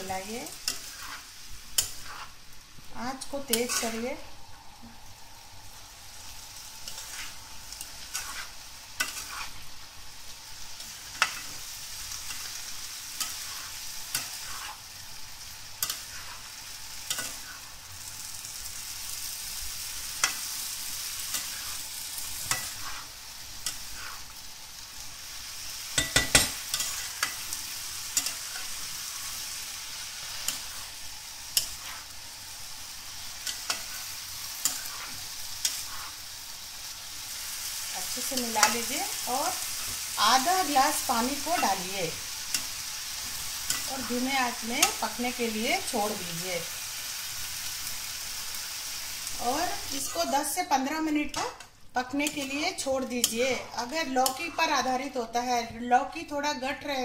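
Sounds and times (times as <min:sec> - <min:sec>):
vegetables sizzling in a frying pan: 0:00.0 - 0:57.0
spatula scraping and tapping pan: 0:00.4 - 0:02.4, 0:06.8 - 0:09.6, 0:10.8 - 0:14.8, 0:15.8 - 0:17.7, 0:20.1 - 0:24.4, 0:25.9 - 0:29.5, 0:30.1 - 0:32.2, 0:33.2 - 0:36.2, 0:39.5 - 0:45.0, 0:51.2 - 0:54.6.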